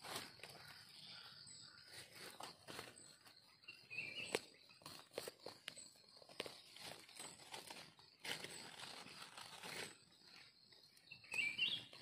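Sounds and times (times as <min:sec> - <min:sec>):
leaves rustling: 0:00.0 - 0:01.0, 0:04.2 - 0:10.5
knife scraping in dry soil: 0:00.0 - 0:12.0.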